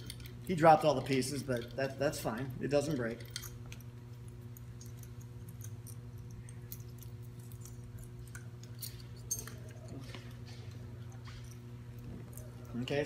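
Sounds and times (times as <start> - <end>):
small metal parts clinking: 0.0 - 10.1
low electrical hum: 0.0 - 13.0.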